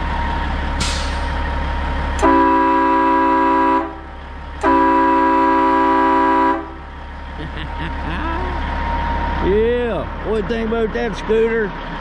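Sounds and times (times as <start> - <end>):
train horn blasts: 2.2 - 6.8.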